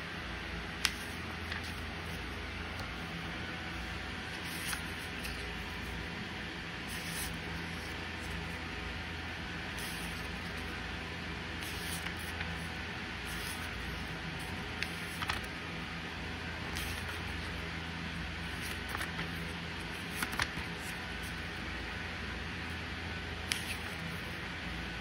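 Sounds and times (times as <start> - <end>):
background hiss and low hum: 0.0 - 25.0
paper pages turning: 0.8 - 6.0, 6.8 - 8.6, 9.7 - 10.8, 11.6 - 15.6, 16.6 - 17.6, 18.4 - 21.4, 23.4 - 24.4.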